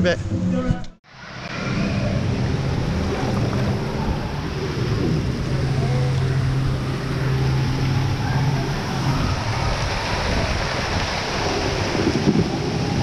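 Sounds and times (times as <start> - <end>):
steady low hum: 1.1 - 12.9
water rushing and splashing: 1.1 - 13.0.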